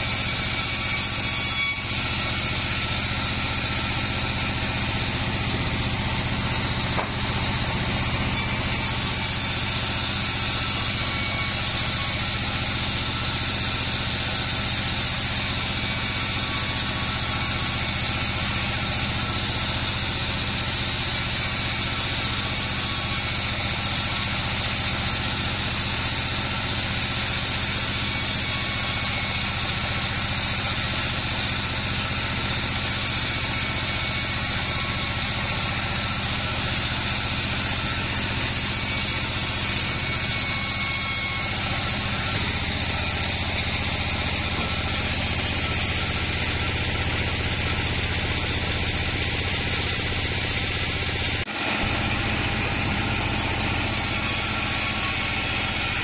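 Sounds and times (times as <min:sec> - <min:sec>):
band saw cutting logs: 0:00.0 - 0:56.0.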